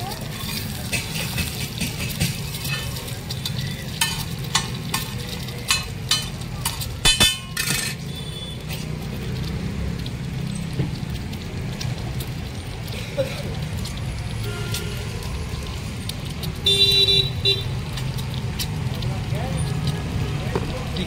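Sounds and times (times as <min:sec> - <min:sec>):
oil sizzling on a griddle: 0:00.0 - 0:21.0
metal spatula scraping griddle: 0:00.2 - 0:08.8.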